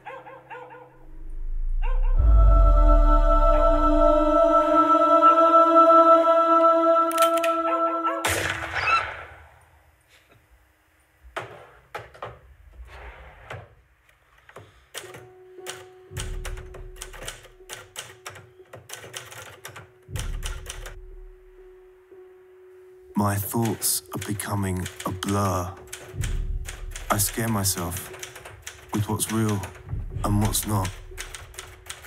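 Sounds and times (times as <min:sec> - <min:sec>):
typewriter keys clacking: 0:14.9 - 0:20.9, 0:23.4 - 0:32.0.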